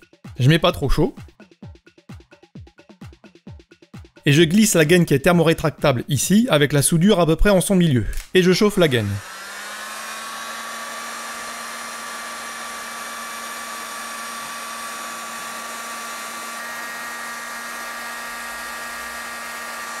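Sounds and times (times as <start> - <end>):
heat gun fan humming: 8.1 - 20.0.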